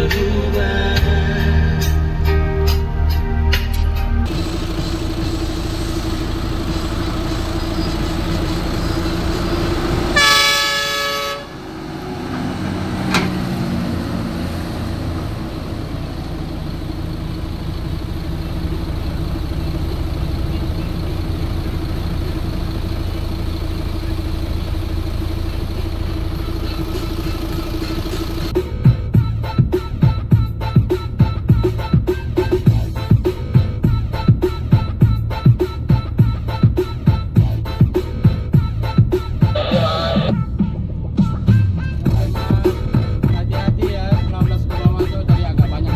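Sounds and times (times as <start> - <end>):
diesel truck engine drone: 0.0 - 45.9
loud truck horn blast: 9.4 - 13.5, 38.6 - 43.2.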